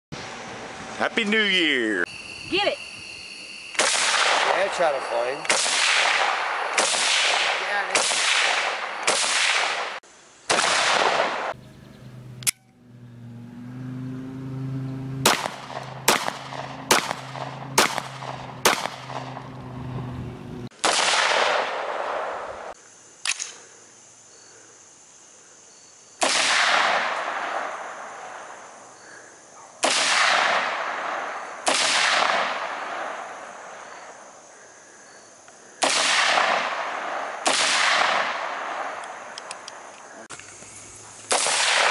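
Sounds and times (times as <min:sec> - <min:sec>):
echoing gunshots: 0:03.8 - 0:11.6, 0:15.2 - 0:19.6, 0:20.7 - 0:22.8, 0:26.2 - 0:28.0, 0:29.8 - 0:33.3, 0:35.8 - 0:39.0, 0:41.3 - 0:41.9
semi-automatic rifle shots: 0:03.8 - 0:11.6, 0:15.2 - 0:19.5, 0:20.7 - 0:22.7, 0:26.2 - 0:27.8, 0:29.8 - 0:33.2, 0:35.8 - 0:39.1, 0:41.3 - 0:41.9
low hum: 0:11.5 - 0:20.7
handgun shots: 0:15.2 - 0:19.3.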